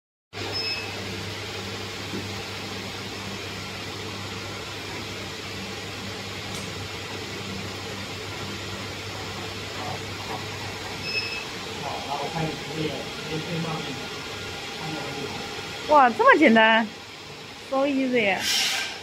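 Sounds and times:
electrical hum and fan noise: 0.4 - 19.0
short high beep: 0.5 - 0.9, 11.0 - 11.4.

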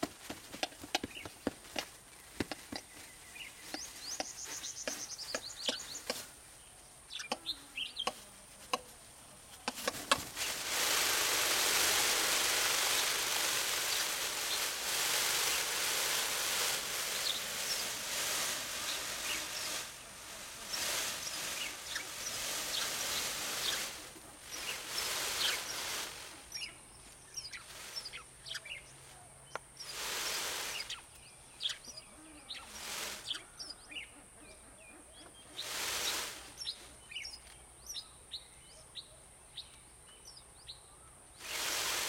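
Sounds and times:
hissing rattle of shaken feathers: 0.0 - 38.0, 41.4 - 42.0
short high bird chirps: 3.3 - 6.2.

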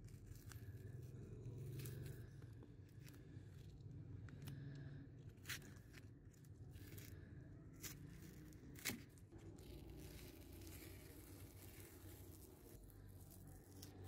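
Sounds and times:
tape peeling and tearing: 5.4 - 14.0.

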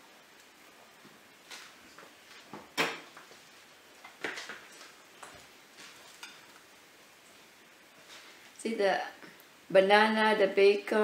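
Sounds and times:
knife clinking and scraping a plate: 6.1 - 6.5.

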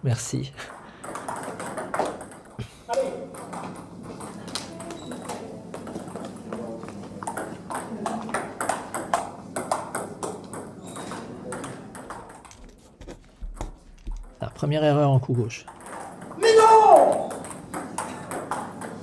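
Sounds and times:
murmur of voices: 4.0 - 8.7
table tennis ball clicking: 7.2 - 12.8, 13.4 - 14.4, 15.6 - 16.4, 17.1 - 19.0.

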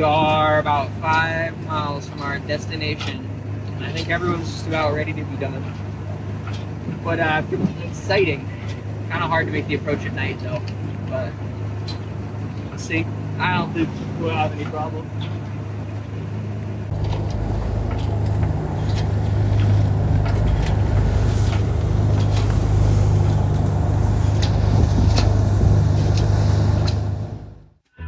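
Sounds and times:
boat engine humming: 0.0 - 28.0
wind: 0.0 - 28.0
water rushing: 11.0 - 27.3.

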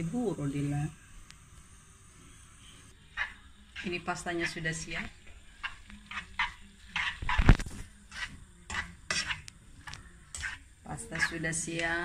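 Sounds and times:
tongs clicking and scraping a pan: 3.1 - 11.9.

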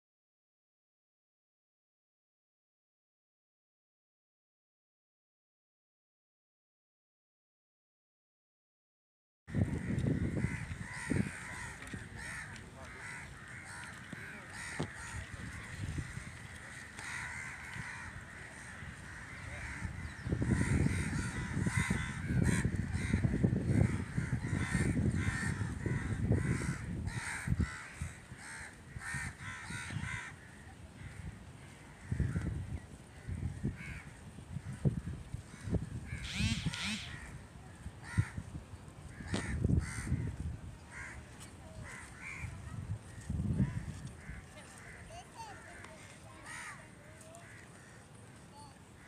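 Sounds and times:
crows cawing: 9.5 - 34.7, 35.5 - 37.4, 38.0 - 38.4, 39.1 - 40.3, 40.9 - 42.5, 43.1 - 48.2
wind buffeting microphone: 9.5 - 49.0.

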